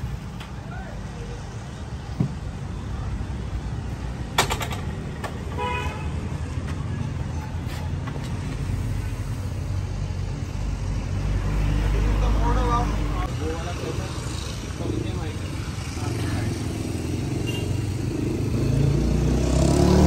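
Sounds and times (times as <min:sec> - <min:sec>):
dirt bike horn beep: 0:17.4 - 0:17.8.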